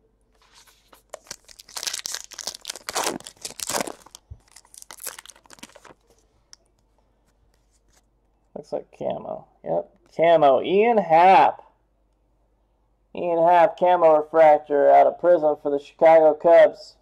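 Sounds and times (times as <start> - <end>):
foil wrapper torn and crinkled: 0.5 - 6.6.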